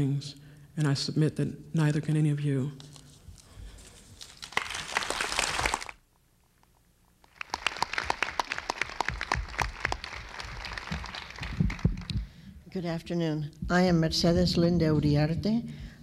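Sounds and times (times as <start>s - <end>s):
crowd applauding: 4.4s - 6.0s, 7.3s - 12.4s.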